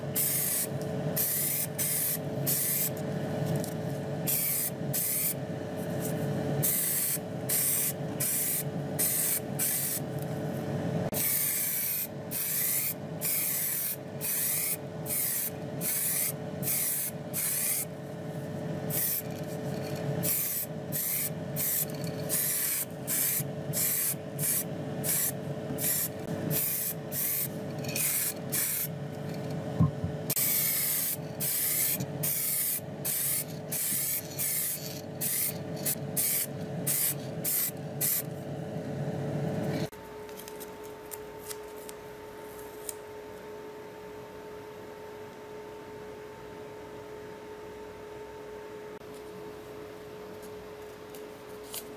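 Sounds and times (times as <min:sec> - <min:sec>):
steady hum: 0:00.0 - 0:45.2
spray can hissing: 0:00.2 - 0:02.9, 0:04.3 - 0:05.4, 0:06.6 - 0:10.0, 0:11.2 - 0:17.9, 0:18.9 - 0:19.2, 0:20.2 - 0:28.9, 0:30.4 - 0:38.2.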